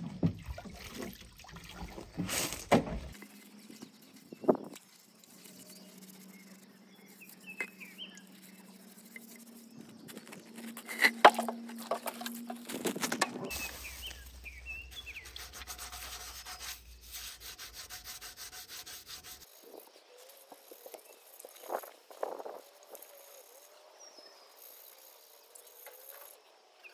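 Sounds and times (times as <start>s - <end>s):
birds chirping: 3.1s - 17.3s
hands scrubbing ceramic sink: 14.9s - 19.5s.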